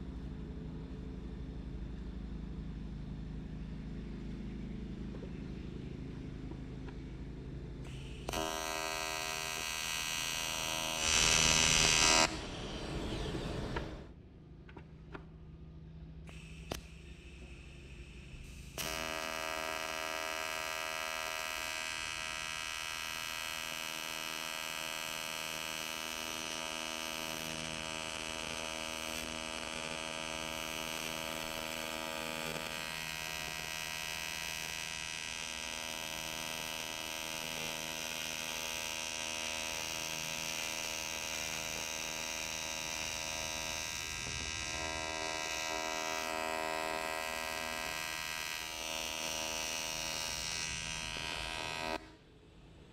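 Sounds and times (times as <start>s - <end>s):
welding arc buzzing: 7.8s - 14.1s, 16.2s - 52.3s.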